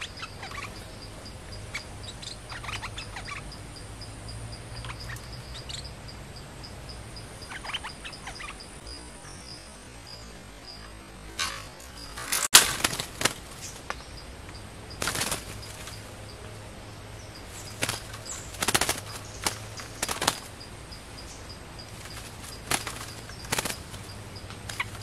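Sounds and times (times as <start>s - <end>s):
bird wingbeats against a cage: 11.4s - 14.1s, 15.0s - 16.2s, 17.4s - 20.6s, 21.8s - 25.0s.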